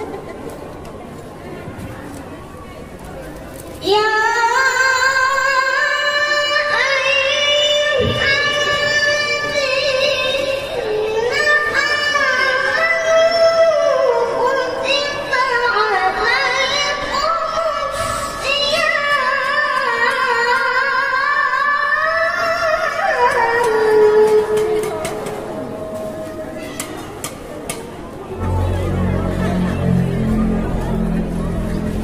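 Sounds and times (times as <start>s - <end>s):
boy reciting in melodious voice: 3.8s - 26.8s.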